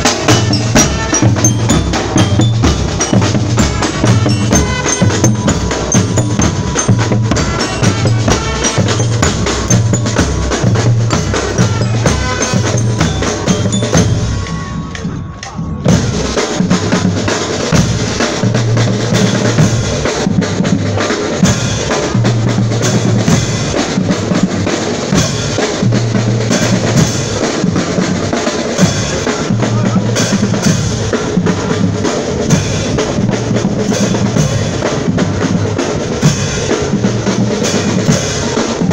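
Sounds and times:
marching drums: 0.0s - 38.9s.

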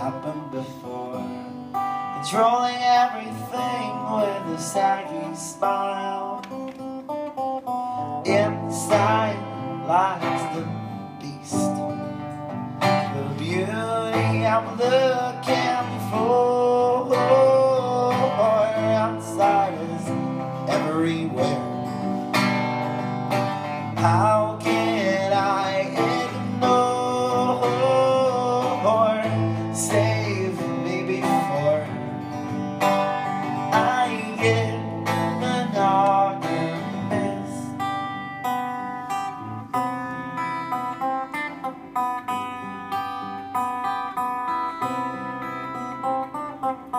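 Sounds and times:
man singing: 0.0s - 7.1s, 7.9s - 22.5s, 23.6s - 38.2s
acoustic guitar strumming: 0.0s - 46.9s.

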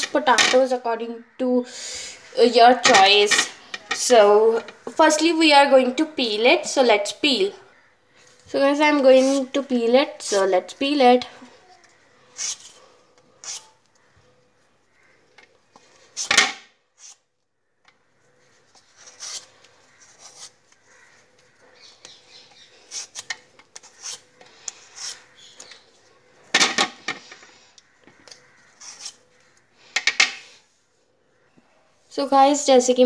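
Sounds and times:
peeler scraping potato skin: 9.0s - 9.6s, 12.3s - 12.8s, 13.4s - 13.8s, 17.0s - 17.2s, 18.7s - 25.8s, 28.2s - 29.6s.

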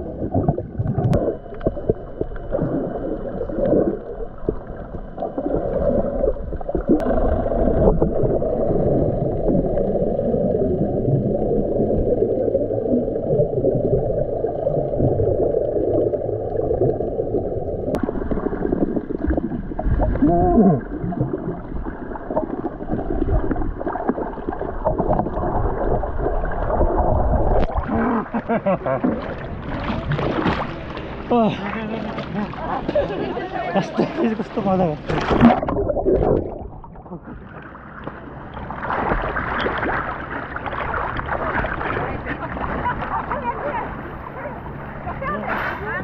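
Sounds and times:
bubbling: 0.0s - 44.0s
muffled underwater rush: 0.0s - 46.0s.

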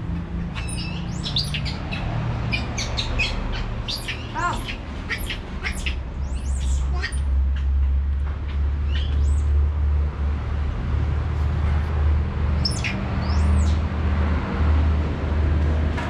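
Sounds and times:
baby monkey squeaky calls: 0.6s - 7.3s, 8.9s - 9.4s, 12.6s - 13.8s.

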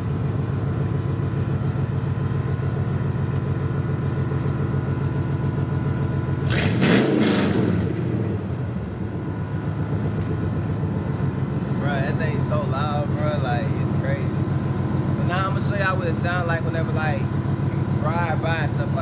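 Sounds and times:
truck engine idling: 0.0s - 6.8s, 7.5s - 19.0s
engine revving: 6.4s - 8.7s.

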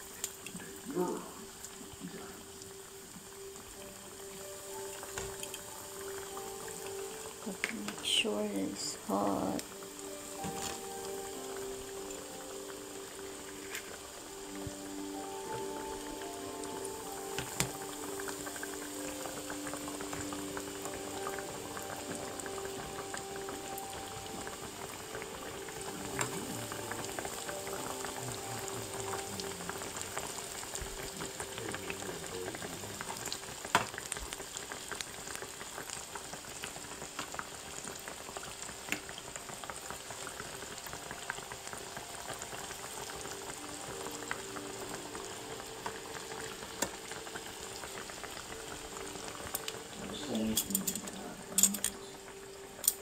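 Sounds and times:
chicken sizzling in hot oil: 0.0s - 53.0s.

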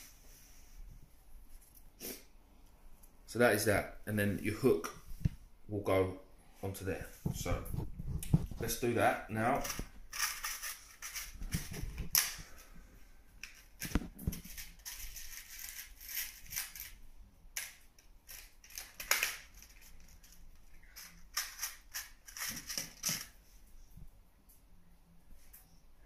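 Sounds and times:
crinkly plastic rustling: 9.4s - 12.7s, 13.4s - 17.0s, 18.2s - 23.4s.

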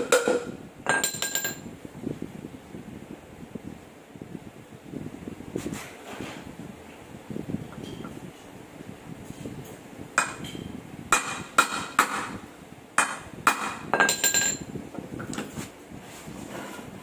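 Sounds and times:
hammer striking steel: 10.2s - 12.4s, 13.0s - 14.6s.

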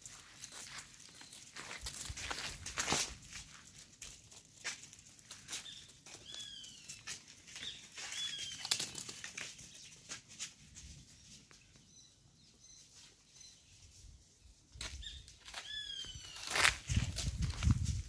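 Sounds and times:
footsteps on dry grass: 0.0s - 6.4s, 14.9s - 18.0s
faint bird chirps: 15.0s - 16.5s
whistled bird calls: 15.0s - 16.5s.

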